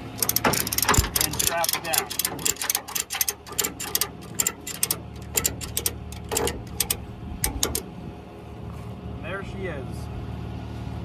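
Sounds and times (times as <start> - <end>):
strap ratchet clicking: 0.0 - 7.9.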